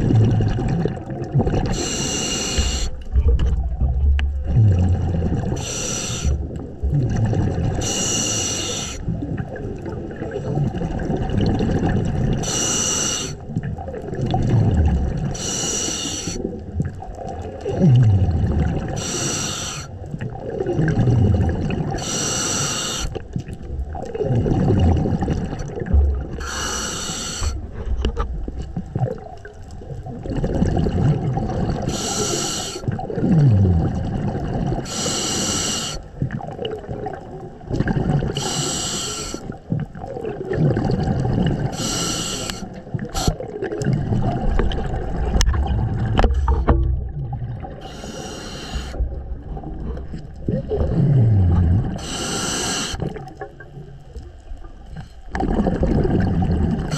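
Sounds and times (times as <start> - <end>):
bubbling exhaled air: 0.0 - 53.9, 54.8 - 56.9
regulator hissing inhale: 1.7 - 3.0, 5.5 - 6.5, 7.8 - 9.1, 12.4 - 13.4, 15.3 - 16.5, 18.9 - 20.0, 22.0 - 23.2, 26.4 - 27.7, 31.8 - 32.9, 34.8 - 36.1, 38.4 - 39.6, 41.7 - 43.5, 47.8 - 49.0, 52.0 - 53.1.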